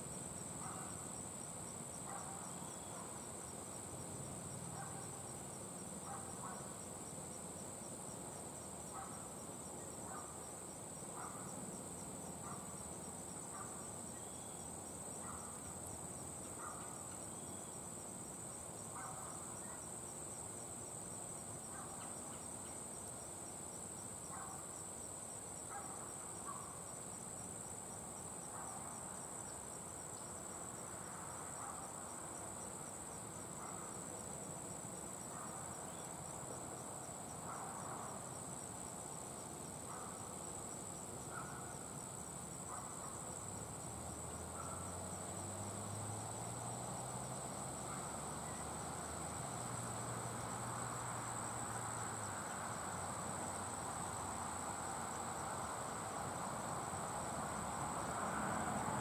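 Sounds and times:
insects trilling: 0.0s - 59.0s.

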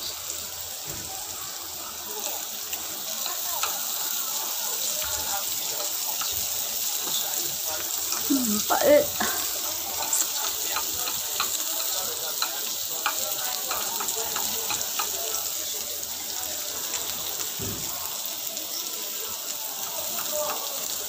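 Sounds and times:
vegetables sizzling in a wok: 0.0s - 21.0s
chopsticks clicking against pan: 3.2s - 4.0s, 5.0s - 8.4s, 9.2s - 15.6s, 19.8s - 21.0s.

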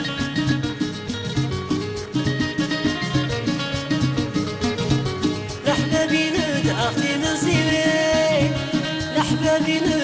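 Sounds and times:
banjo melody: 0.0s - 10.0s
hand drums beating: 0.0s - 10.0s.

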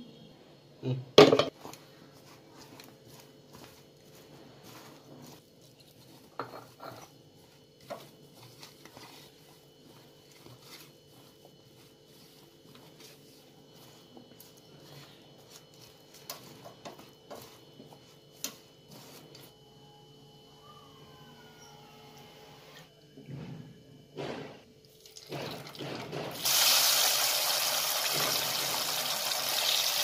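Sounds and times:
hand mixing vegetables in bowl: 1.5s - 19.5s.

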